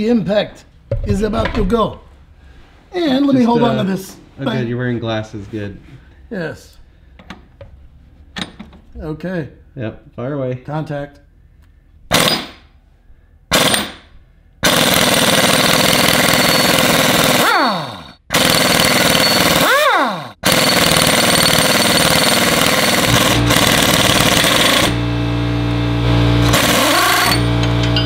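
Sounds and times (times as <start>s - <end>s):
pneumatic impact wrench hammering: 12.1s - 12.7s, 13.5s - 25.0s, 26.4s - 28.0s
low hum: 23.1s - 28.0s.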